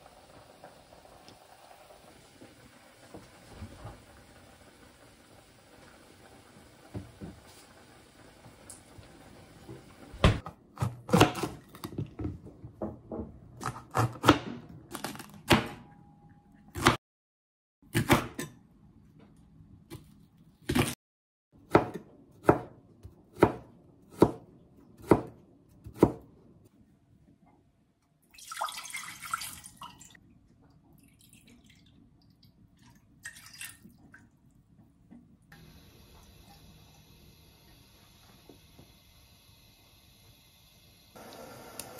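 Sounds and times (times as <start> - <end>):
liquid splash: 32.8 - 34.2.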